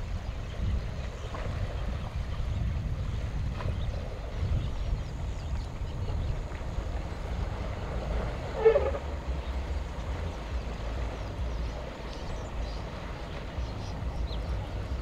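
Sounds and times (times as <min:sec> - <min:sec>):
steady low rumble: 0:00.0 - 0:15.0
elephant call: 0:07.9 - 0:09.8.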